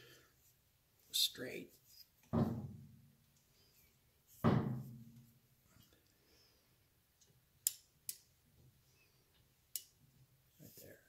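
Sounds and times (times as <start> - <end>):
dull knock: 4.4 - 5.0.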